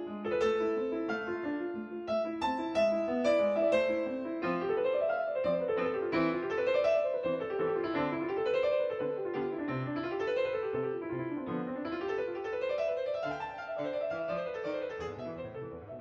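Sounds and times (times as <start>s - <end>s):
piano music: 0.0s - 16.0s.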